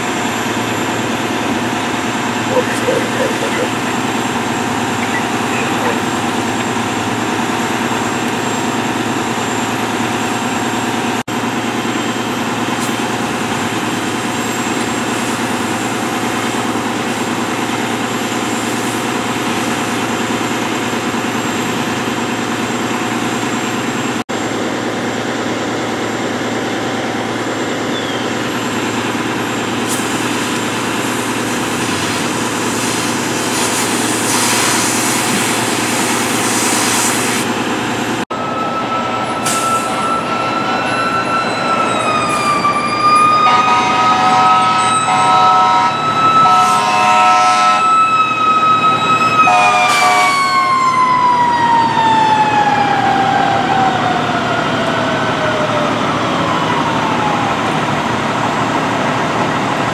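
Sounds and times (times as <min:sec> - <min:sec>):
fire engine pump droning: 0:00.0 - 0:59.9
water spray hissing: 0:31.9 - 0:37.5.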